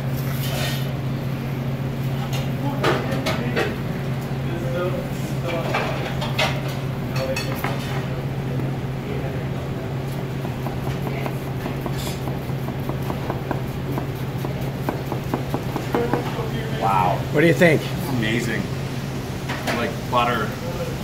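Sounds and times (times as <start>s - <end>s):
steady low hum: 0.0s - 21.0s
knife slicing onion: 10.1s - 16.4s
knife tapping on cutting board: 10.4s - 16.4s.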